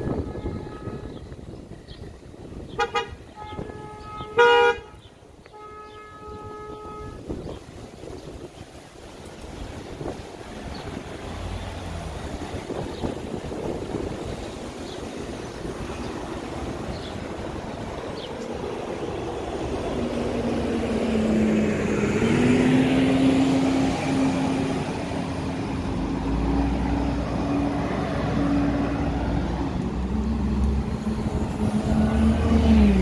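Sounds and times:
street traffic: 0:00.0 - 0:33.0
wind rumble on microphone: 0:00.0 - 0:33.0
bus engine rumble: 0:06.2 - 0:33.0.

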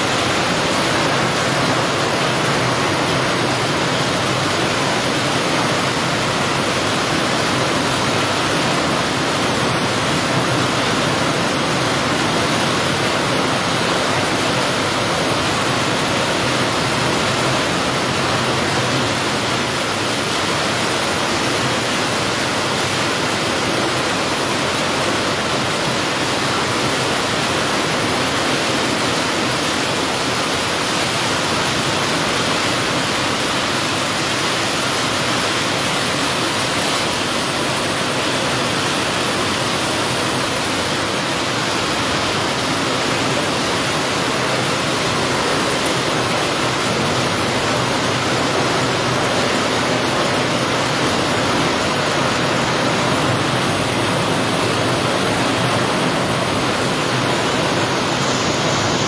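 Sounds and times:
heavy rain on pavement: 0:00.0 - 0:59.0.

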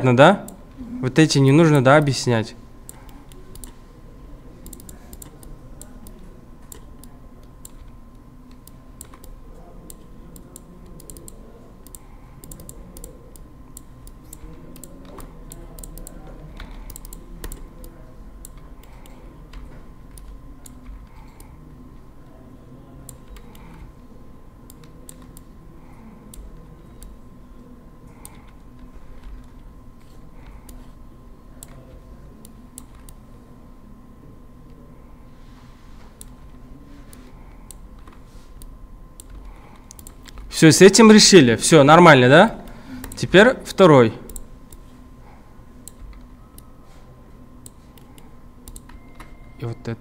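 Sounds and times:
faint steady hum: 0:00.0 - 0:50.0
computer keyboard clicks: 0:02.9 - 0:03.8, 0:04.6 - 0:07.9, 0:08.5 - 0:21.5, 0:24.7 - 0:25.5, 0:37.7 - 0:40.5, 0:47.6 - 0:49.3
computer mouse clicks: 0:02.9 - 0:03.8, 0:04.6 - 0:21.6, 0:23.0 - 0:23.9, 0:24.6 - 0:25.5, 0:28.2 - 0:31.0, 0:31.6 - 0:33.2, 0:36.2 - 0:40.5, 0:44.3 - 0:44.8, 0:45.8 - 0:46.7, 0:47.6 - 0:49.4.

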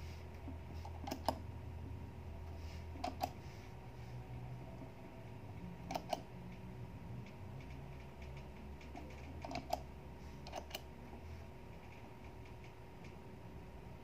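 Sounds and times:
faint low hum: 0:00.0 - 0:14.0.

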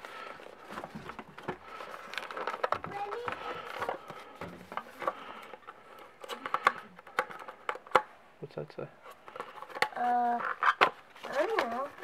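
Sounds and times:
cardboard box rustling: 0:00.0 - 0:05.6, 0:09.6 - 0:12.0.

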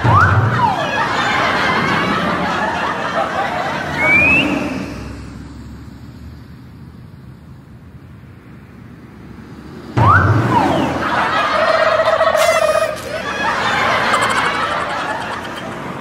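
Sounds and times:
motorbike road noise: 0:00.0 - 0:16.0
short rising whistle: 0:04.0 - 0:05.2, 0:10.0 - 0:11.2.

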